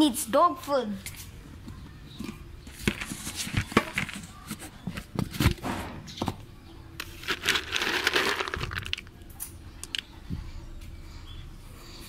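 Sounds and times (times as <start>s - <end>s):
rustling crinkle: 2.7s - 5.6s, 7.0s - 9.1s.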